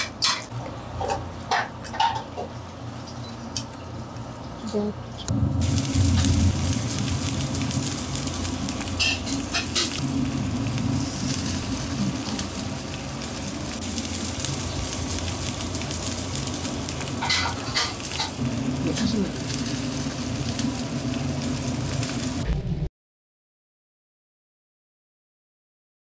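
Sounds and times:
low hum: 3.1 - 22.9
shrimp sizzling on a grill: 5.3 - 22.4.

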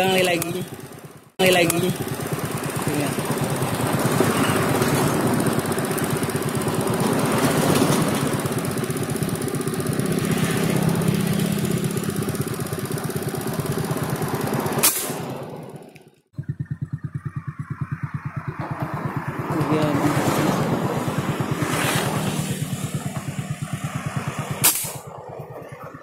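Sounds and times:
small engine running: 0.0 - 26.0
sharp click: 14.8 - 15.2, 24.6 - 25.0.

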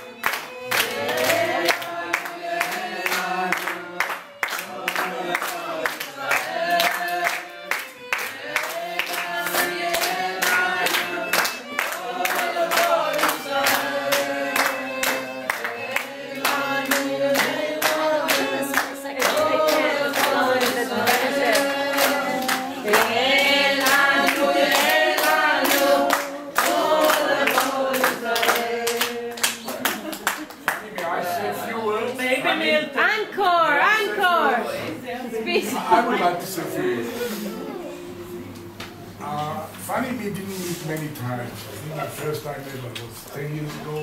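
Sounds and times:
people clapping along: 0.0 - 31.4
group singing together: 0.0 - 32.9.

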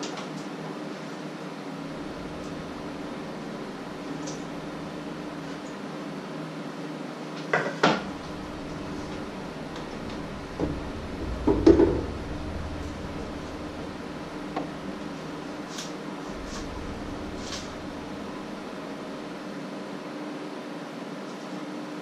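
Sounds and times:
steady low hum: 1.7 - 6.7, 7.8 - 20.2.

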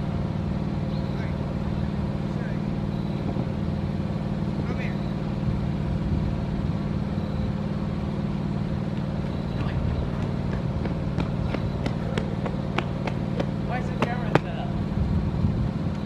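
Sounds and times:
low mechanical rumble: 0.0 - 16.0.

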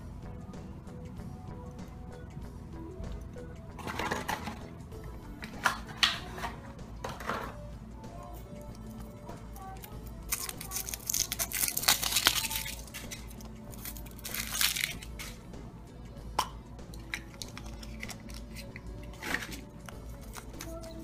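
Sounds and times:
chocolate shell snapping: 9.8 - 15.4, 16.4 - 21.0
foil wrapper crinkling and tearing: 10.2 - 15.4.

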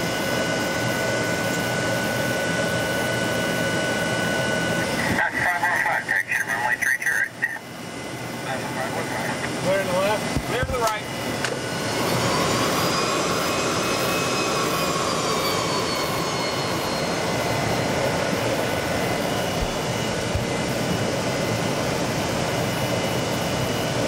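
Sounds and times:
jet engines running in cockpit: 0.0 - 24.0
faint high whines sliding down: 11.4 - 19.8.

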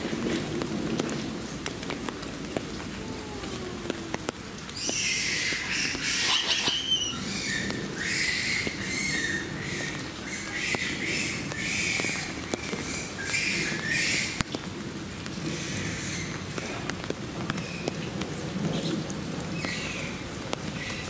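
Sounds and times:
squeaky animal chirps: 6.1 - 7.2.

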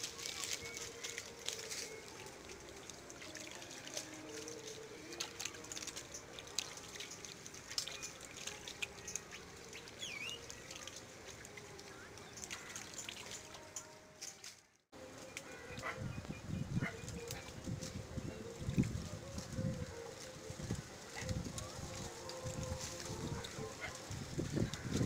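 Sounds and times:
hands splashing in muddy water: 0.0 - 13.8.

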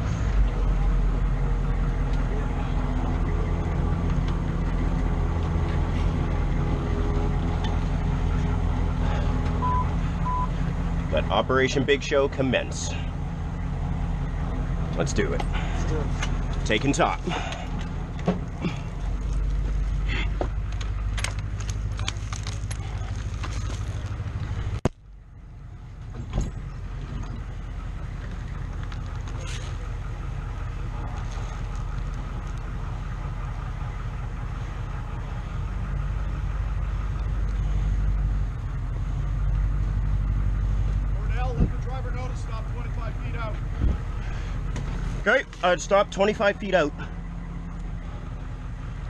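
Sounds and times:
vehicle engine droning: 0.0 - 49.0
short high beeps: 9.6 - 10.5.

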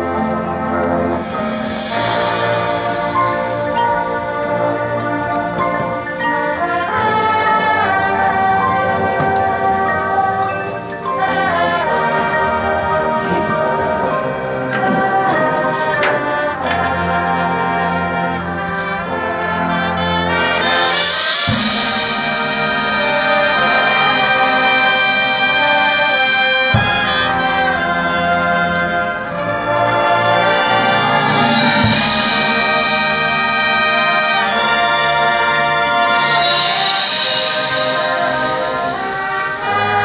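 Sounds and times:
marching band brass chords: 0.0 - 40.0
percussion: 0.0 - 40.0
cymbal crashes: 1.2 - 3.8, 20.9 - 24.5, 30.3 - 34.6, 36.4 - 38.9
deep drum hits: 30.8 - 33.6.

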